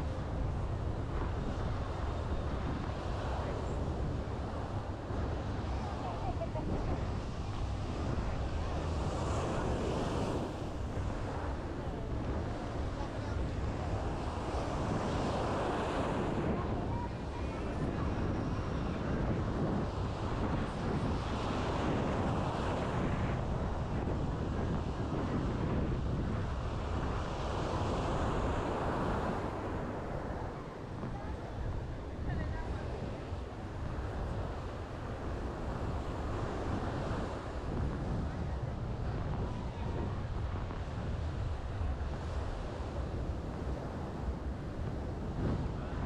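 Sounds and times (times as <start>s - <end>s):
small waves breaking on sand: 0.0s - 46.0s
surf washing up beach: 0.0s - 46.0s
wind noise on microphone: 0.0s - 46.0s.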